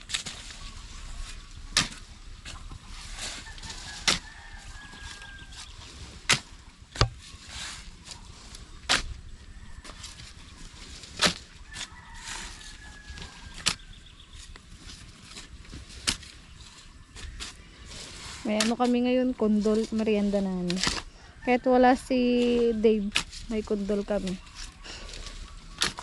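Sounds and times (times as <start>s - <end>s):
shovel striking and scraping soil: 0.0s - 26.0s
rooster crowing: 3.4s - 5.7s, 11.6s - 13.6s.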